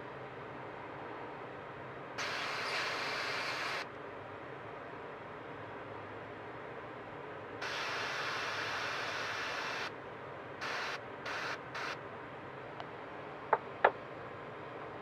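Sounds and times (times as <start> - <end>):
airbrush spraying hiss: 7.6 - 9.9, 10.6 - 12.0.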